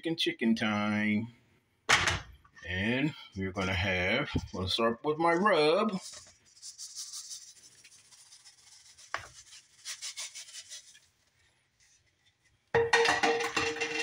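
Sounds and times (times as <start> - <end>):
seasoning rustling patter: 5.9 - 12.7.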